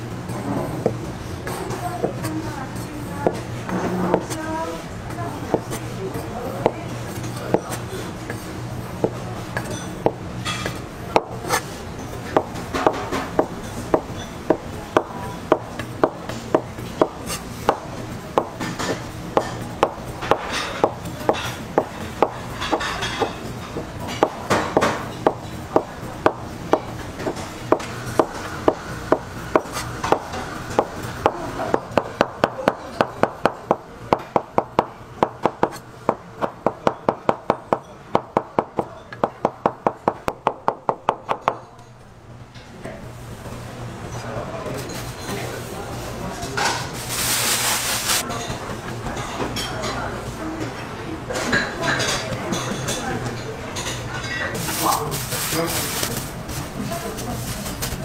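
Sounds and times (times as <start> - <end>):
knife chopping on cutting board: 3.2 - 4.4, 9.0 - 11.7, 12.3 - 41.6.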